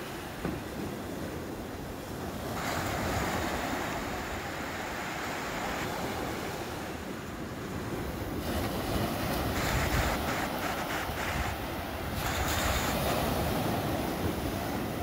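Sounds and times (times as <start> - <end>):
waves breaking on a beach: 0.0 - 15.0.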